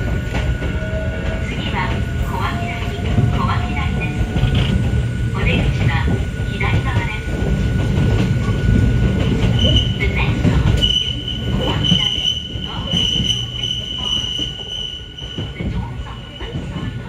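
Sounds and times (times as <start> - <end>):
railcar rumbling: 0.0 - 17.0
train wheels squealing: 8.4 - 16.9.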